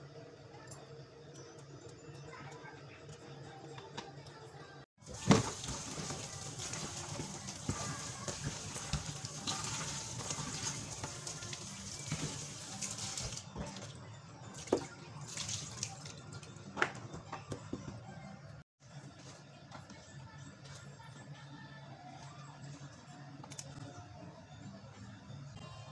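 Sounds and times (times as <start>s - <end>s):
plastic tub rattling: 5.0s - 13.4s
hands rinsing vegetables: 5.0s - 13.9s, 14.5s - 16.3s.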